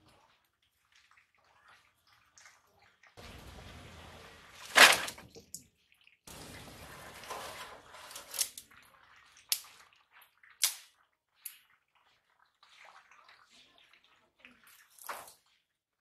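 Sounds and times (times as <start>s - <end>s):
sharp snapping cracks: 10.6s - 10.8s.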